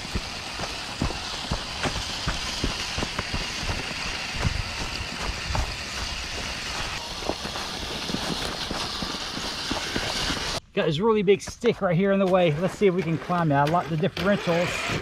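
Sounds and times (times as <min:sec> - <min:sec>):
dry leaves crunching under tyres: 0:00.0 - 0:10.6.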